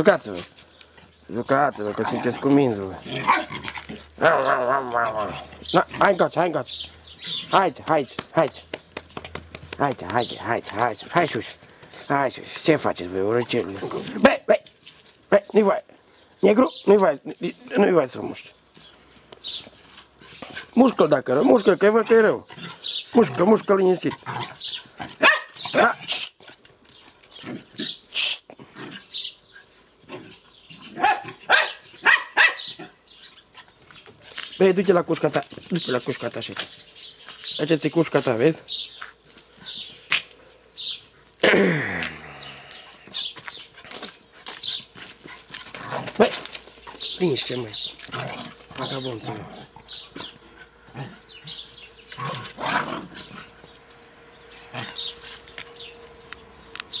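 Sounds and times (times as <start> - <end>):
puppies barking: 1.0 - 6.4, 19.4 - 26.1, 30.2 - 34.0.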